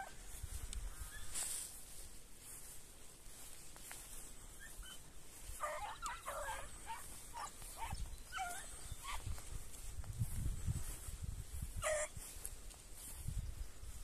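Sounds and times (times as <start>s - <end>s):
dogs yelping and whining: 4.5s - 9.3s, 11.8s - 12.1s.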